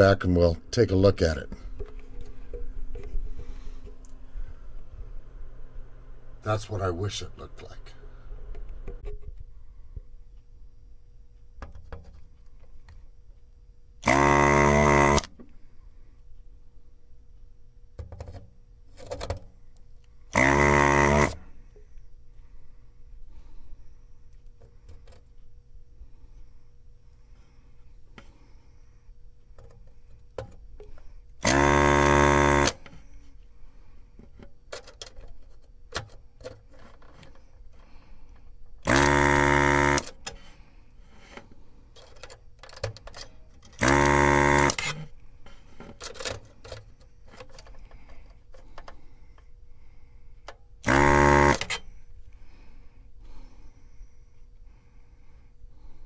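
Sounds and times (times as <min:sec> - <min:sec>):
desoldering vacuum pump buzzing: 0:14.0 - 0:15.6, 0:20.3 - 0:21.9, 0:30.3 - 0:33.3, 0:37.2 - 0:41.5, 0:42.7 - 0:45.6, 0:46.6 - 0:52.0.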